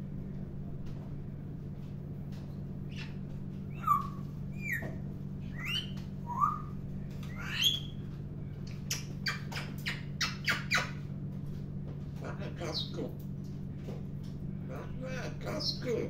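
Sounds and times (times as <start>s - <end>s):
steady low hum: 0.0s - 16.0s
parrot whistles and calls: 2.9s - 8.0s, 8.9s - 11.0s.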